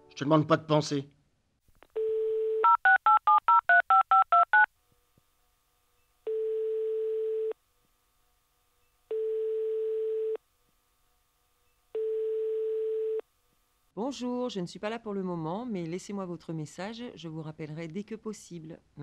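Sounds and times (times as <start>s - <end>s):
telephone dial tone: 1.9s - 4.7s
telephone ringing tone: 2.0s - 4.7s, 6.3s - 7.6s, 9.1s - 10.4s, 12.0s - 13.2s.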